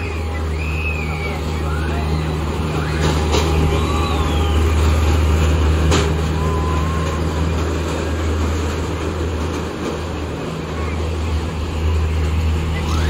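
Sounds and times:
faint high squeals: 0.0 - 5.4
ride machinery humming: 0.0 - 13.0.

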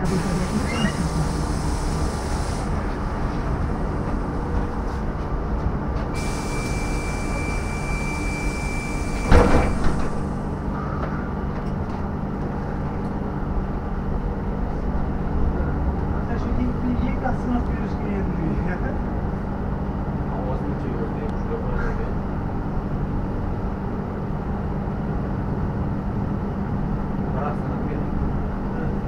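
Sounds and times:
bus road and running noise: 0.0 - 29.0
thin high tone: 6.2 - 9.8.

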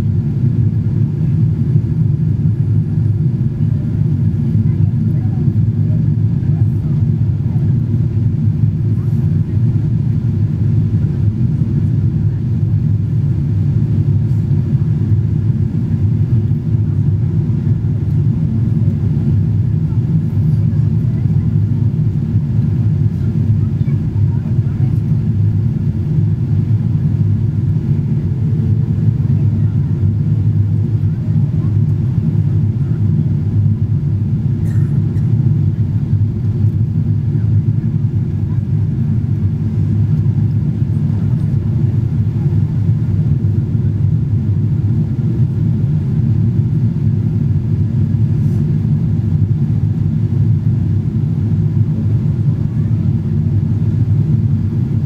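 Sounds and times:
airliner cabin engine rumble: 0.0 - 55.0.

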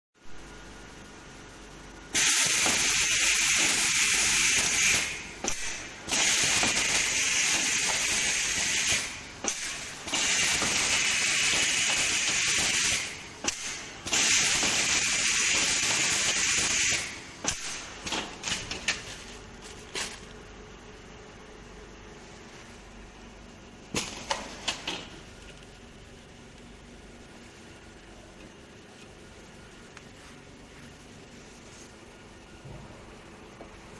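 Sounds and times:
wrapping machine hissing: 2.1 - 20.5.

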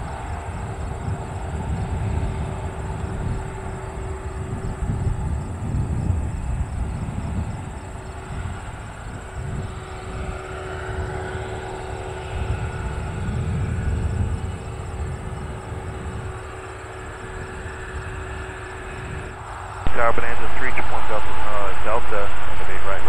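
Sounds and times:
propeller plane engine drone: 0.0 - 23.0
low rumble: 19.8 - 23.0.

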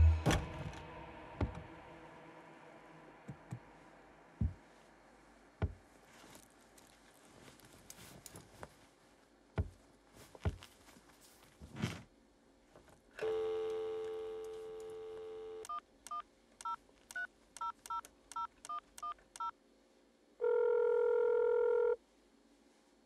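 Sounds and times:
rustle: 6.0 - 9.3
telephone ringback tone: 13.2 - 15.7, 20.4 - 22.0
telephone dial tone: 13.2 - 15.8, 20.4 - 22.0.

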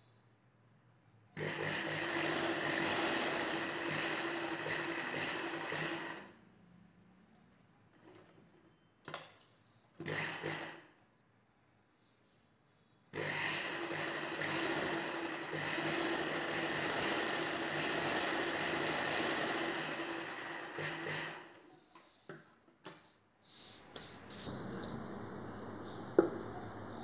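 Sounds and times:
sewing machine stitching: 1.4 - 6.4, 10.0 - 10.9, 13.1 - 21.7.

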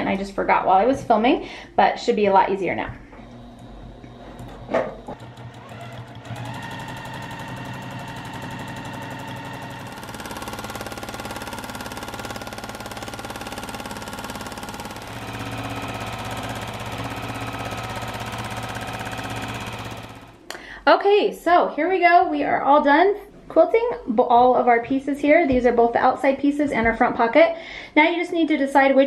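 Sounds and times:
sewing machine stitching: 3.2 - 20.4.

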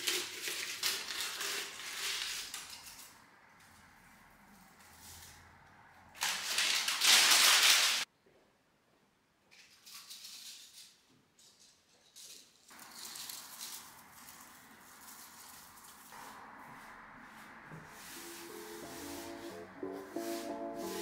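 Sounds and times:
dried plants rustling and crackling: 0.0 - 5.4, 6.1 - 8.0, 12.7 - 19.5
hands brushing plant bits on wood: 12.7 - 21.0.

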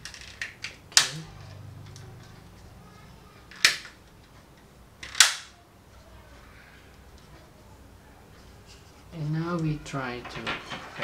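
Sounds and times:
plastic clips snapping: 0.0 - 1.2, 5.0 - 5.6.

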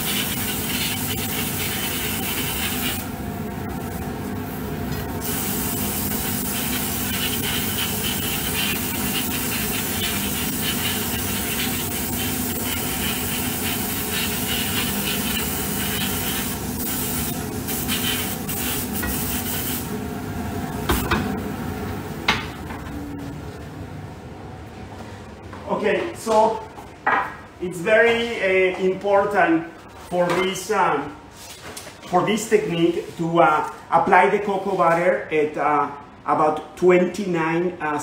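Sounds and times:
airbrush hissing: 0.0 - 3.0, 5.2 - 19.9
machine hum: 19.8 - 28.1.

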